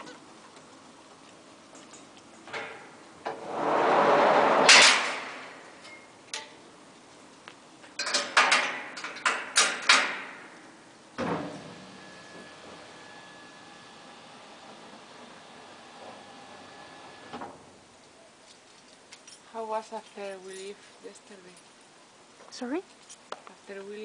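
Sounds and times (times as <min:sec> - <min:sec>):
loud bang: 0:03.3 - 0:05.6.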